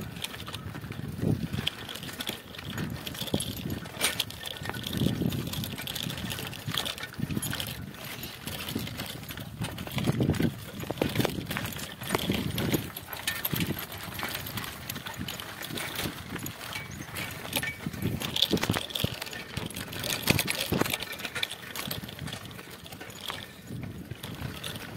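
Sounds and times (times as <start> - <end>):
bike rattling over bumps: 0.0 - 24.9
tyres crunching on gravel: 0.0 - 24.9.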